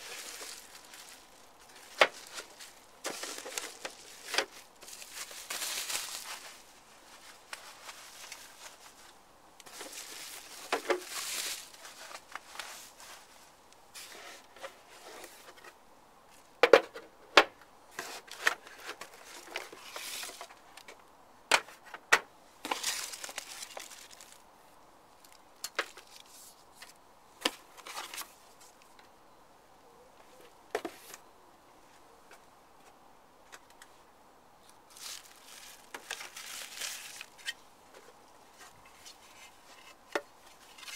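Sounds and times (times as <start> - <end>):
bubble wrap and plastic rustling: 0.0 - 15.6, 17.9 - 20.7, 22.6 - 24.5, 25.2 - 28.8, 34.6 - 40.9.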